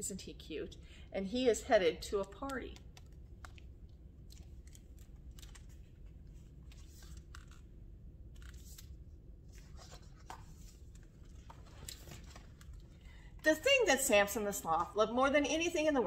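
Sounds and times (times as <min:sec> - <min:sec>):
low room hum: 0:00.0 - 0:16.0
book pages rustling: 0:04.3 - 0:07.7, 0:08.3 - 0:13.0.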